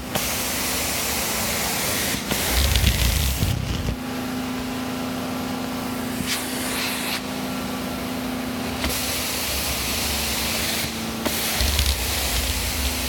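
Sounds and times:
carpet cleaning machine humming: 0.3 - 13.0
loud spraying hiss: 9.2 - 13.0.

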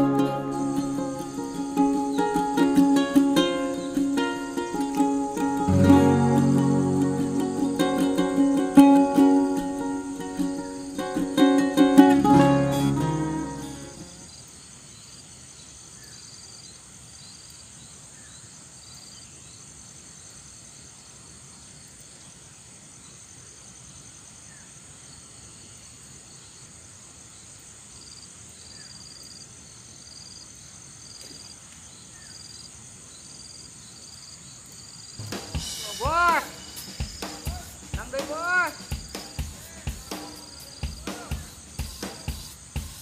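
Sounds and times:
ukulele music: 0.0 - 14.2, 35.2 - 43.0
insect chorus: 0.0 - 43.0.

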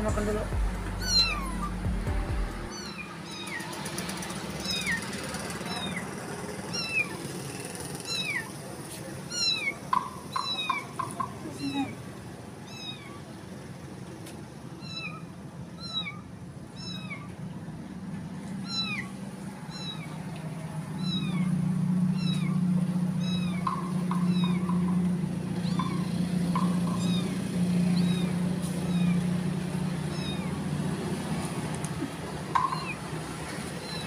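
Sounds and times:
kitten mewing: 1.0 - 1.9, 9.3 - 9.8, 14.8 - 17.3, 18.6 - 19.1, 19.7 - 20.2, 21.0 - 24.9, 25.6 - 29.4, 30.0 - 30.6.

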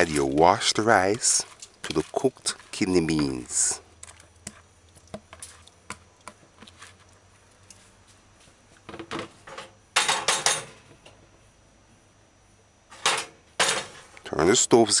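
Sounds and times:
pot clattering on burner grate: 8.9 - 10.9, 12.9 - 14.1.

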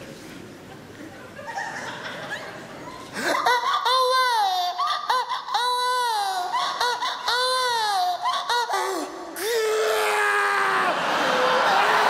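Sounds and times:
man imitating crying baby: 3.3 - 11.0.

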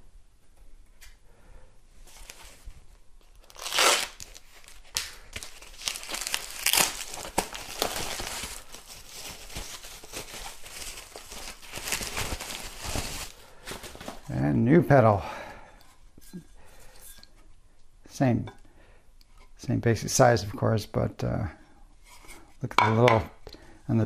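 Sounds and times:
paper crumpling and tearing: 3.4 - 14.3.

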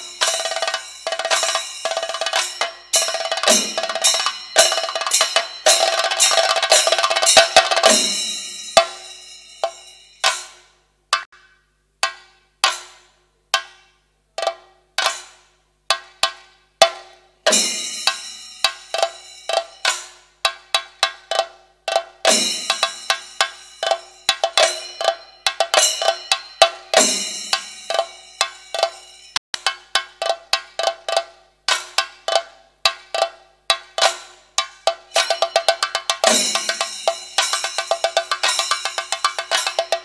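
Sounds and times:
drums playing: 0.0 - 10.6, 16.2 - 40.0
cymbals ringing: 0.0 - 10.7, 17.5 - 20.2, 22.2 - 29.4, 34.0 - 40.0.

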